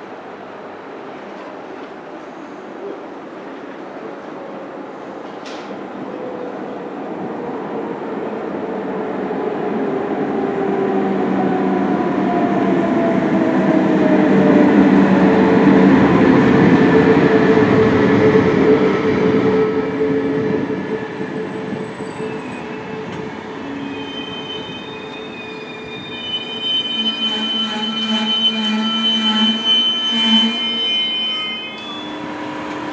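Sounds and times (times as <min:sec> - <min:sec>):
electric locomotive passing: 0:00.0 - 0:32.9
high wheel squeals: 0:19.8 - 0:32.9.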